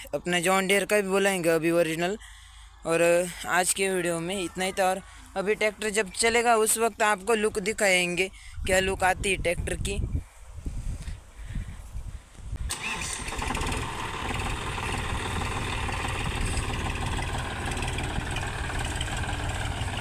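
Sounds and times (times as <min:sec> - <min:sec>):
tractor diesel engine: 0:12.7 - 0:20.0.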